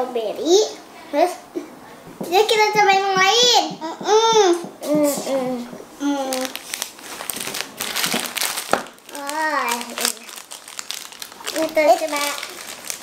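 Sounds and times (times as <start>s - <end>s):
plastic wrappers crinkling: 6.0s - 13.0s.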